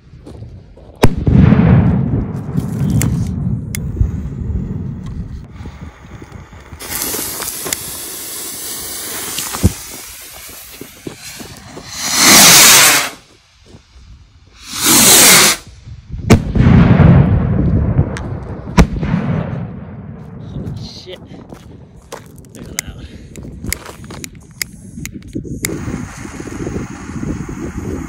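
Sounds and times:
rocket whooshing launches: 0:01.0 - 0:13.3, 0:14.5 - 0:20.4, 0:25.7 - 0:28.0
sharp crack: 0:18.1 - 0:19.7.

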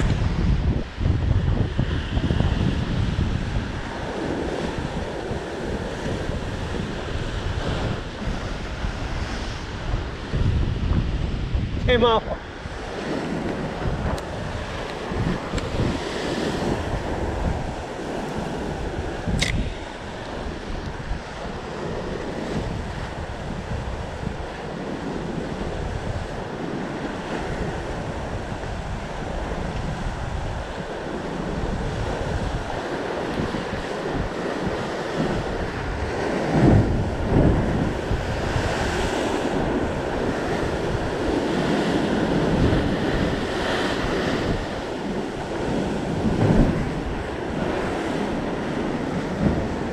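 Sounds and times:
wind buffeting the microphone: 0:00.0 - 0:49.9
short sharp tick: 0:19.4 - 0:19.6.

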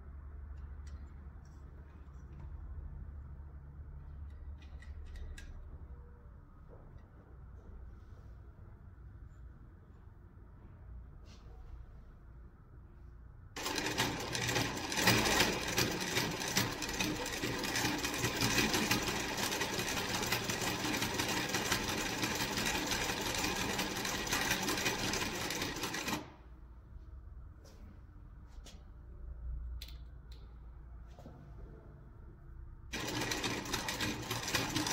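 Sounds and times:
sewing machine sewing: 0:13.6 - 0:26.4, 0:32.9 - 0:34.9.

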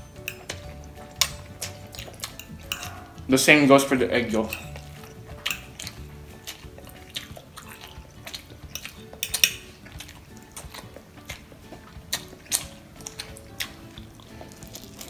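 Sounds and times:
soft background music: 0:00.0 - 0:15.0
fork clicking on glass dish: 0:04.5 - 0:06.6.

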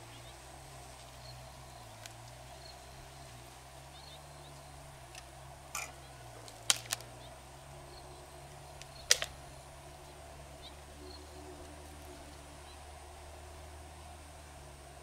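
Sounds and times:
steady low background noise: 0:00.0 - 0:15.0
mussel shells clacking: 0:05.8 - 0:07.0.

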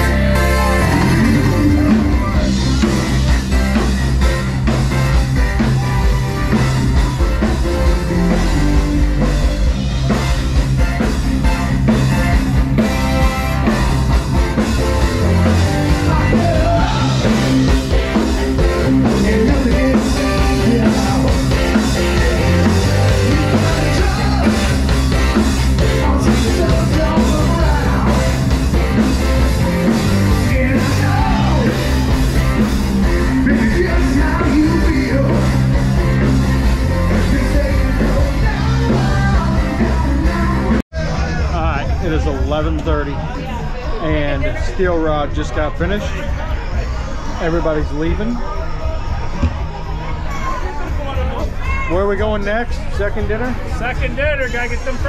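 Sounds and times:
loud rock band playing: 0:00.0 - 0:55.0
man singing into a microphone: 0:15.9 - 0:17.6, 0:19.0 - 0:24.8, 0:25.8 - 0:28.4, 0:30.2 - 0:31.9, 0:33.4 - 0:35.8, 0:37.1 - 0:40.8.

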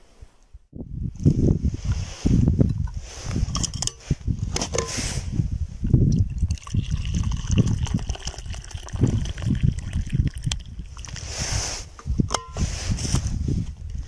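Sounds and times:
drink pouring into metal cup: 0:06.1 - 0:11.2.

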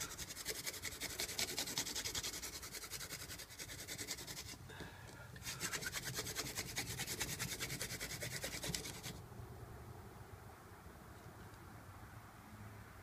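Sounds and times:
hand drill scraping in wood: 0:00.0 - 0:04.6, 0:05.4 - 0:09.2.

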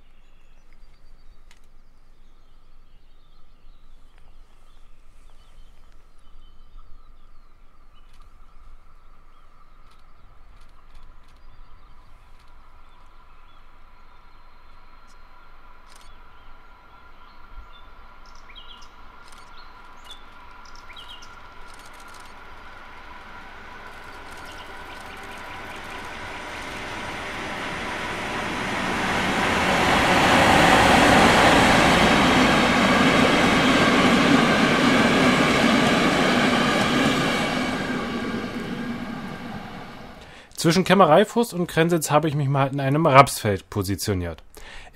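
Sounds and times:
birds chirping: 0:00.0 - 0:44.9
train wheels rushing on rails: 0:10.6 - 0:40.8.

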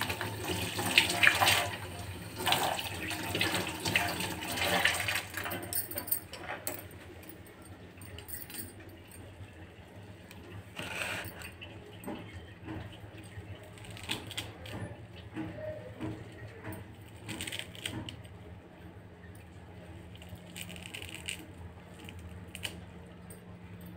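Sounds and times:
bangles clinking: 0:05.6 - 0:09.2.

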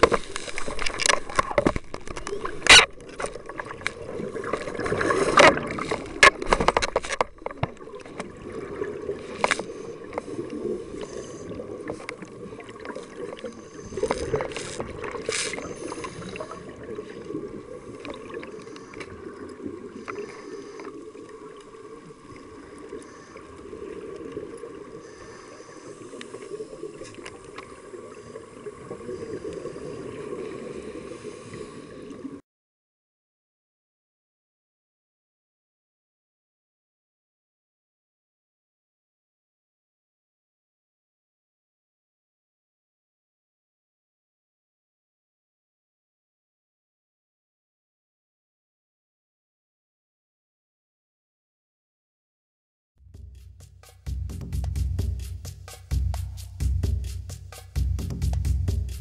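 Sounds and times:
underwater rush of water: 0:00.0 - 0:32.4.

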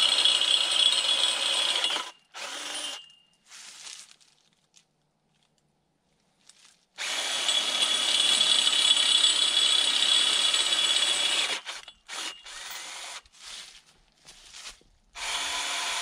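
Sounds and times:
power tool whining: 0:07.0 - 0:13.2, 0:15.2 - 0:16.0.

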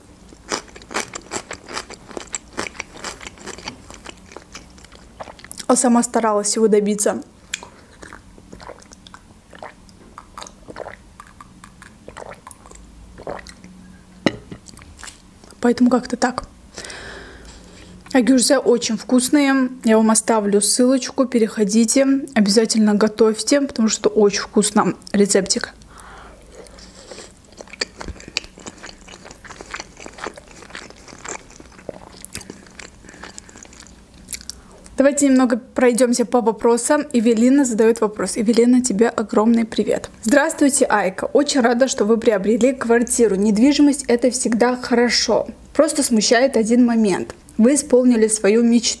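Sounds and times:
wet chewing: 0:00.3 - 0:05.7, 0:07.5 - 0:13.8, 0:26.6 - 0:34.6
mouth smacks: 0:07.5 - 0:15.2.

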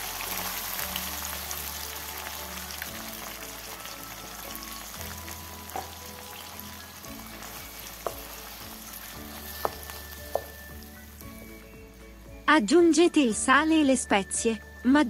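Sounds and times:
sauce sizzling in a pan: 0:00.0 - 0:12.5
spoon knocking against pan: 0:05.7 - 0:06.1, 0:07.4 - 0:08.6, 0:09.4 - 0:10.8.

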